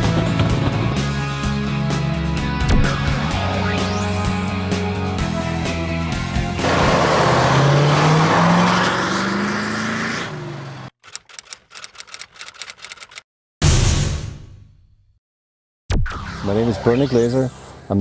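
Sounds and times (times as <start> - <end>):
car engine revving: 6.3 - 10.9
quick clicks: 11.0 - 13.2
sudden loud hit: 13.6 - 14.7.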